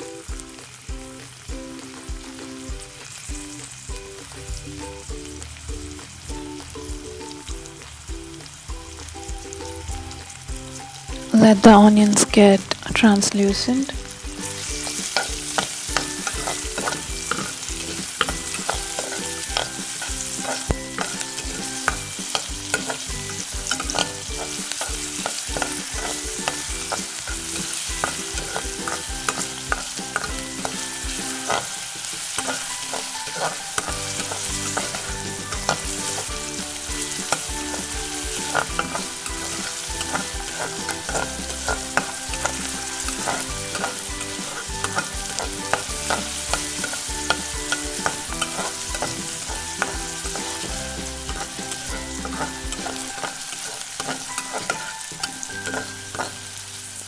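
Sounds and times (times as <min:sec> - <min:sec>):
onions sizzling in oil: 0:00.0 - 0:57.0
spatula scraping pan: 0:14.3 - 0:56.6.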